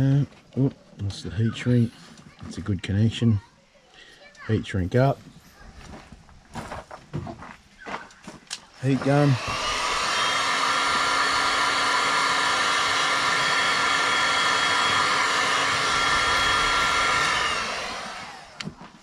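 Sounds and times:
heat gun blowing air: 8.7 - 18.8
motor hum and whine: 8.7 - 19.0.

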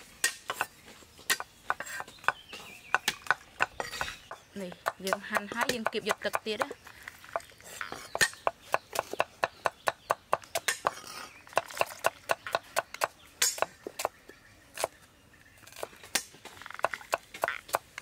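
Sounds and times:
knives chopping on wooden boards: 0.2 - 14.2, 15.7 - 18.0.

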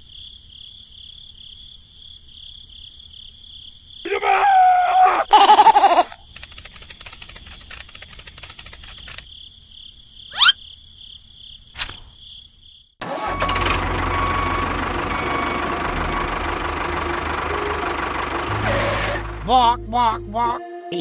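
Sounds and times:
engine starting and running: 6.3 - 9.2, 13.0 - 19.8.

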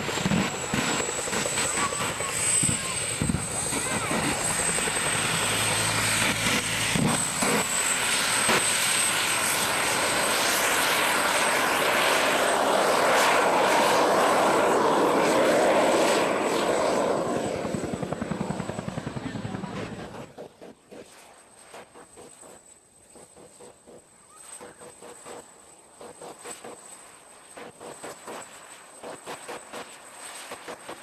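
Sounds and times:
jet engine roaring: 0.0 - 21.2.

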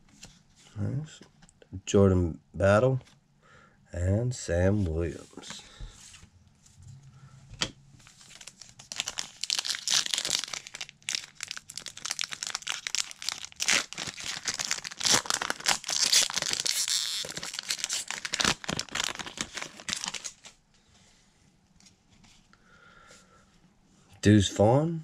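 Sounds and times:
foil wrapper crinkling and tearing: 8.0 - 20.6.

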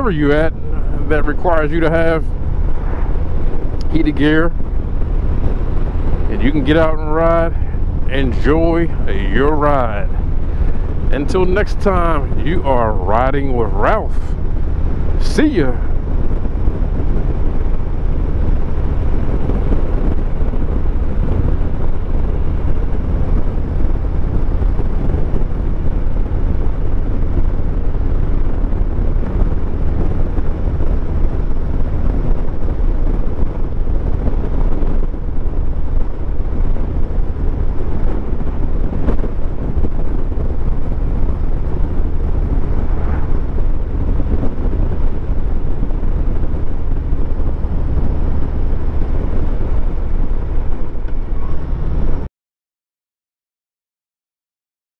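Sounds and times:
motorcycle engine rumble: 0.0 - 52.3
wind rushing over microphone: 0.0 - 52.3.

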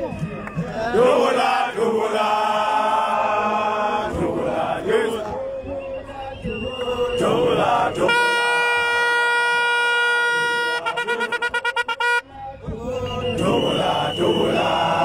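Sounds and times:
crowd chanting: 0.0 - 9.3, 10.4 - 15.0
horn blast and short toots: 7.9 - 12.4.

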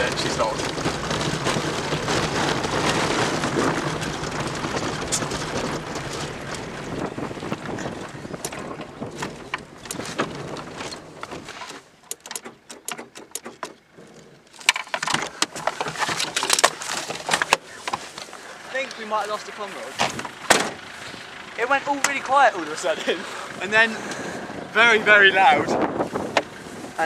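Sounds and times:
road and tyre noise: 0.0 - 27.0
clicks and knocks: 8.4 - 18.2.

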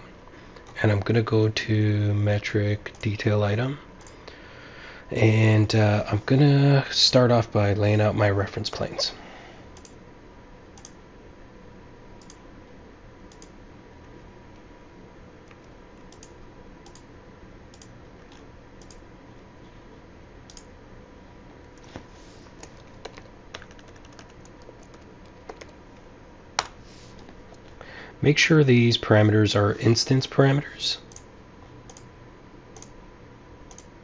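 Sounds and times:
faint steady hum: 0.0 - 34.0
mouse clicks: 12.2 - 12.4, 33.7 - 33.9
keyboard typing: 22.6 - 25.8.

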